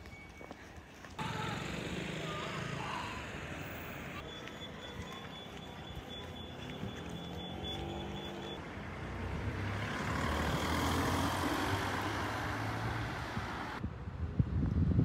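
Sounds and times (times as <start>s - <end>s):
vehicle engine passing by: 1.2s - 4.2s, 6.4s - 13.8s.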